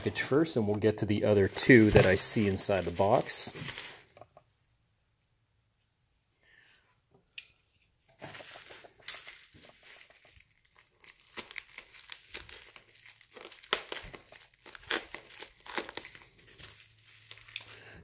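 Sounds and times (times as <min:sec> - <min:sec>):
bubble wrap crackling and snapping: 0:01.4 - 0:04.2, 0:08.2 - 0:18.0.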